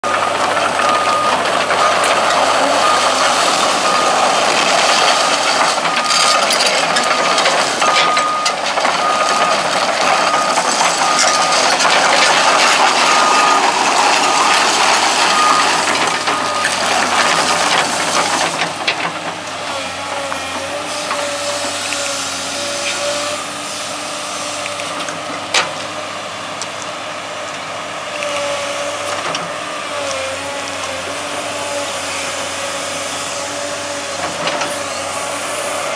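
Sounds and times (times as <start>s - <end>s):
reversing alarm beeping: 0.0s - 18.6s
diesel engine running: 0.0s - 35.9s
excavator tracking over gravel: 0.0s - 35.9s.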